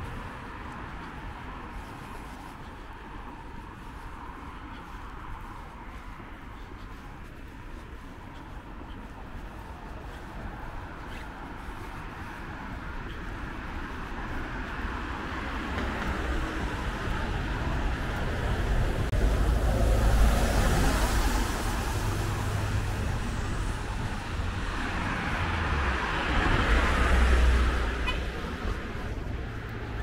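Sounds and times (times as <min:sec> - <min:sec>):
bus passing: 0:00.0 - 0:30.0
traffic on wet street: 0:00.0 - 0:30.0
vehicle passing: 0:10.0 - 0:30.0.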